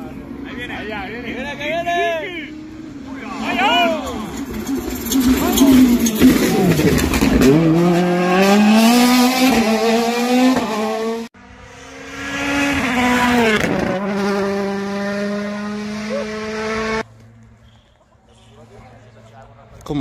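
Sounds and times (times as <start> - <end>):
rally car engine accelerating: 3.0 - 17.0.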